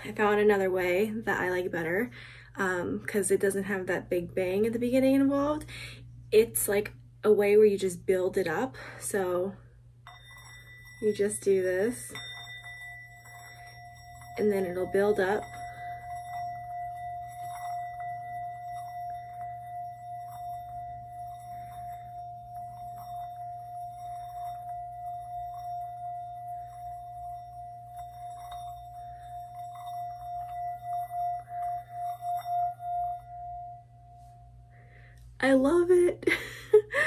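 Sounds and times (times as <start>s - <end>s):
singing bowl ringing: 10.0s - 36.0s
mallet scraping bowl rim: 10.1s - 35.1s.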